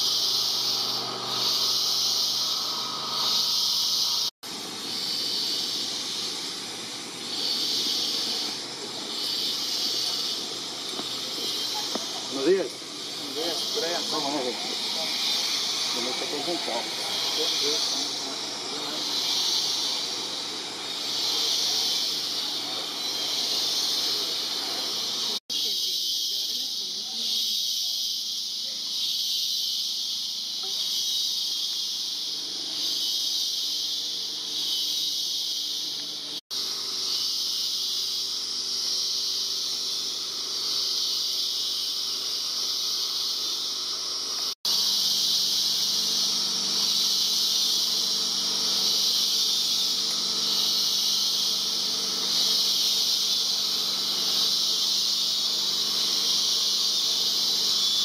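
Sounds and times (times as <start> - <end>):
insect chorus buzzing: 0.0 - 58.0.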